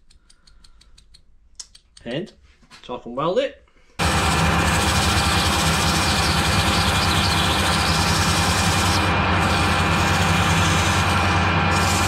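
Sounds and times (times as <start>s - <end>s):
emery cloth sanding metal tube: 4.0s - 12.0s
lathe motor hum: 4.0s - 12.0s.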